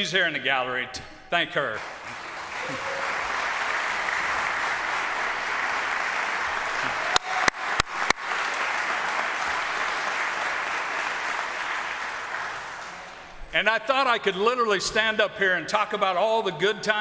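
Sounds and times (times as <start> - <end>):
close claps into microphone: 1.7 - 13.4
crowd applauding: 1.8 - 13.4.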